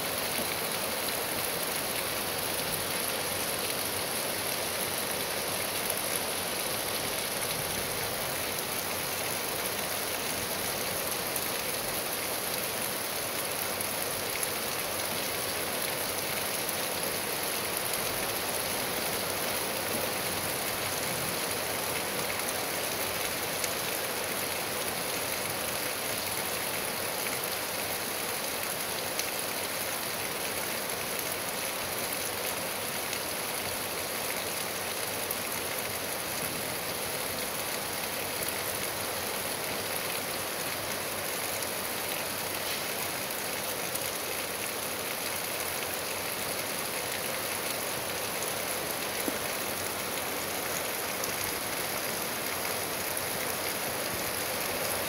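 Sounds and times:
rain on grass and trees: 0.0 - 55.0.

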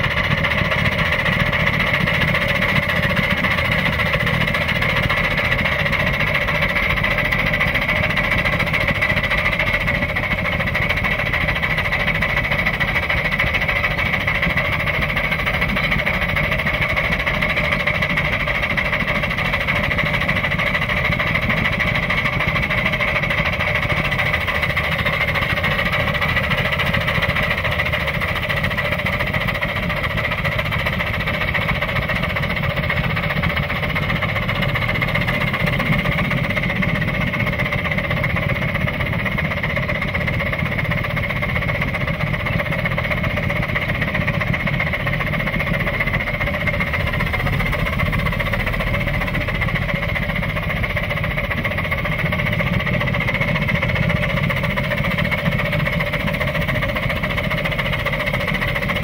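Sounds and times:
steam locomotive running: 0.0 - 59.0.

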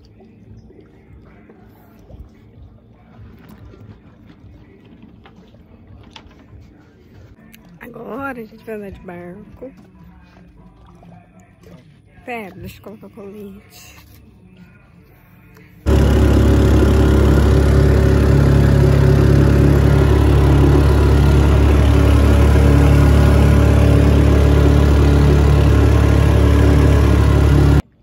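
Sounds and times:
boat motor running: 15.8 - 28.0.

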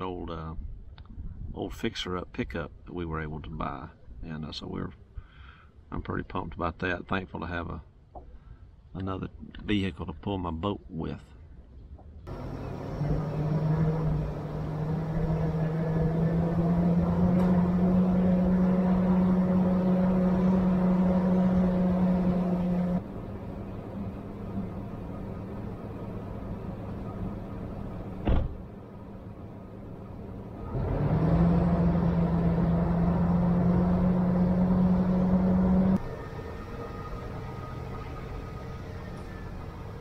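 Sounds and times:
pickup truck engine: 12.3 - 40.0.

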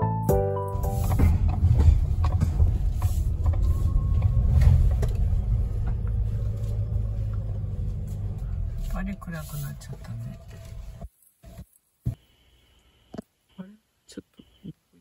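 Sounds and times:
electric piano music: 0.0 - 1.4
car cabin rumble while driving: 0.5 - 11.1
light creaks and rattles: 1.0 - 12.2.

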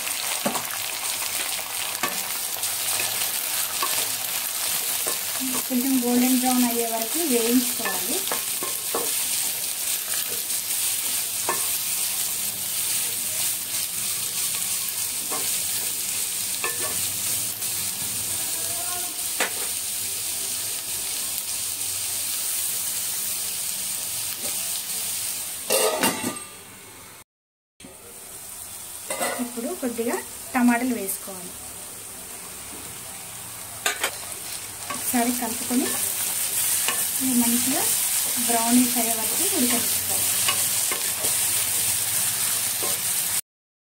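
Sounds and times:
onions sizzling in hot oil: 0.0 - 26.0, 28.0 - 43.4
spatula scraping and knocking pan: 7.8 - 9.2, 10.1 - 11.8.

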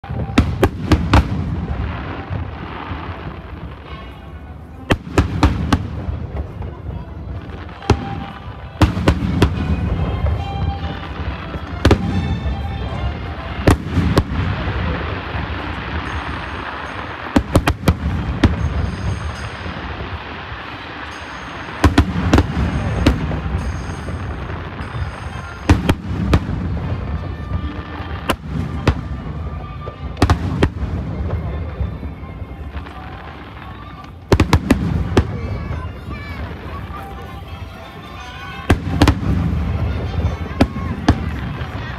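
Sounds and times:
firework booms: 0.0 - 3.8, 4.9 - 20.3, 38.5 - 41.9.

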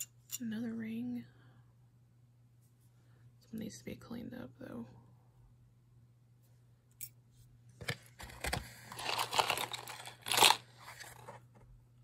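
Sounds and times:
metal jewelry rustling and clattering: 8.9 - 11.3.

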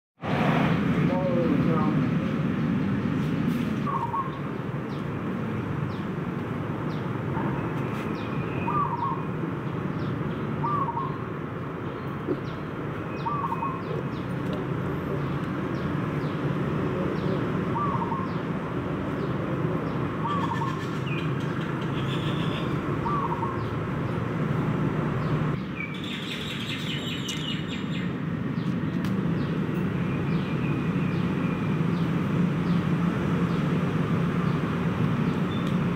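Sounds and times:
higher bird chirps: 6.9 - 11.3, 11.9 - 14.3, 19.2 - 23.8.

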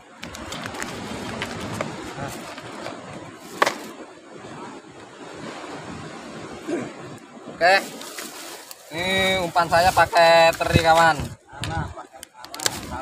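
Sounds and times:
hands rummaging in bag: 0.2 - 3.9.

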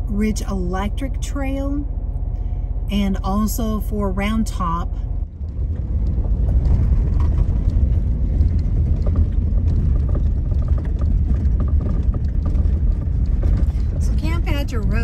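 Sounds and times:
van engine rumble: 0.0 - 15.0
gravel crunching under tyres: 5.0 - 15.0.

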